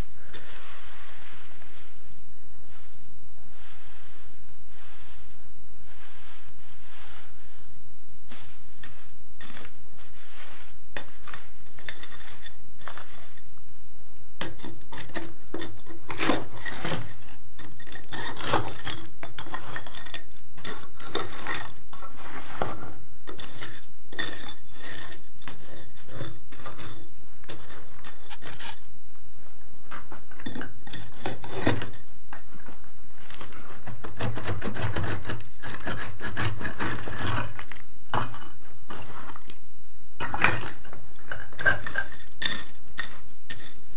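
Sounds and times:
hand tool scraping rubble: 0:08.3 - 0:13.5, 0:14.4 - 0:28.9, 0:29.9 - 0:39.6, 0:40.2 - 0:43.9.

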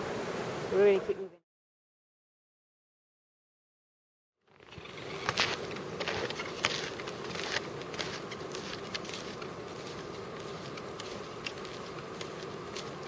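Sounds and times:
snowshoe steps crunching in snow: 0:05.0 - 0:13.0.

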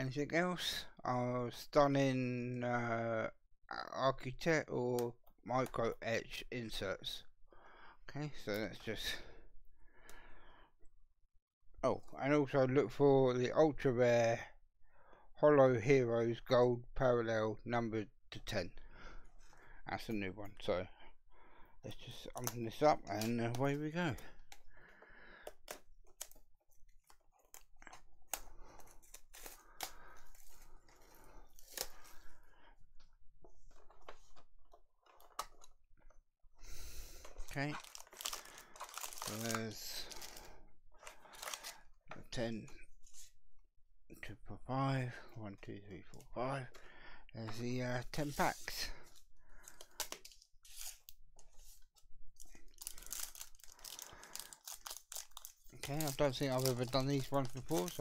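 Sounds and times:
shrink-wrap and cardboard tearing: 0:27.1 - 0:32.2, 0:37.3 - 0:40.4, 0:41.0 - 0:41.8, 0:49.8 - 0:51.2, 0:52.4 - 0:58.0.

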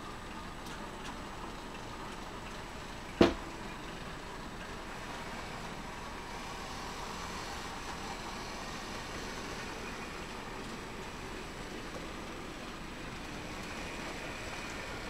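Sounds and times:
model train rolling on track: 0:00.0 - 0:15.0.

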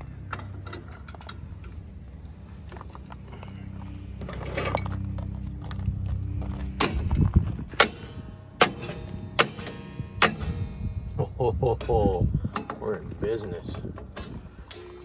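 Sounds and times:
sharp metallic clicks: 0:07.8 - 0:10.8.

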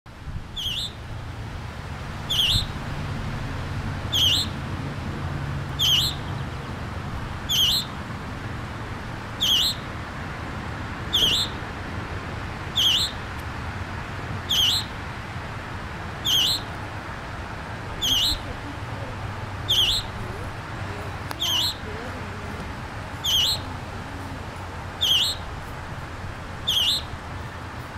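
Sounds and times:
bird calling: 0:00.5 - 0:01.0, 0:02.2 - 0:02.8, 0:04.0 - 0:04.6, 0:05.7 - 0:06.8, 0:07.4 - 0:08.0, 0:09.3 - 0:09.9, 0:11.1 - 0:11.6, 0:12.7 - 0:13.3, 0:14.4 - 0:15.0, 0:16.2 - 0:16.8, 0:17.9 - 0:25.6, 0:26.6 - 0:27.2.

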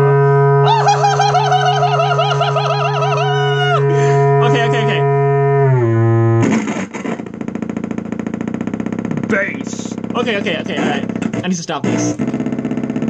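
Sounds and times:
buzzy pulsing synthesizer tone: 0:00.0 - 0:13.0
low synthesizer drone: 0:00.0 - 0:13.0
warbling synthesizer tone: 0:00.5 - 0:11.5
gliding synthesizer sound: 0:00.6 - 0:06.0.

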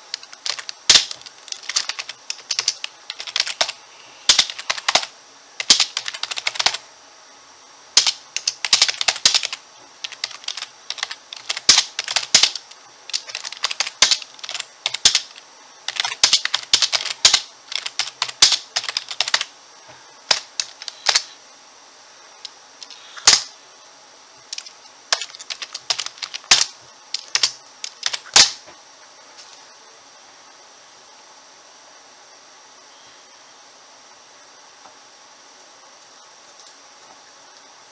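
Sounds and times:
computer keyboard typing: 0:00.1 - 0:06.8, 0:08.0 - 0:19.5, 0:20.3 - 0:21.3, 0:24.5 - 0:28.6.

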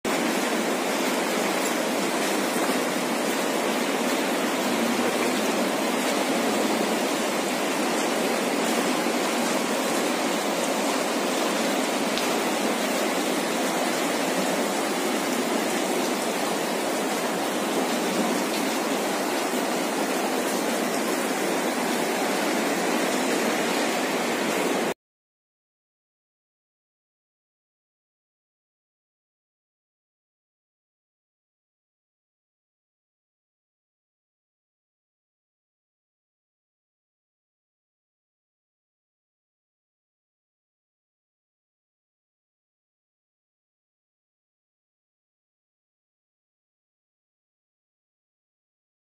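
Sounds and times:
meltwater stream rushing: 0:00.1 - 0:25.0.

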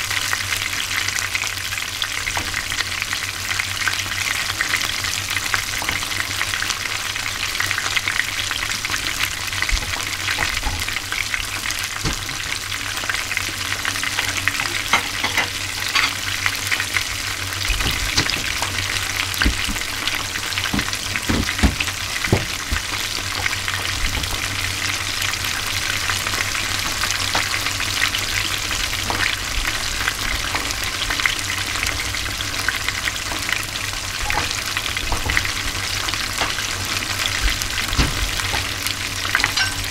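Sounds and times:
fish sizzling in hot oil: 0:00.0 - 0:39.9
dull knocks: 0:19.4 - 0:19.9, 0:20.7 - 0:22.9.

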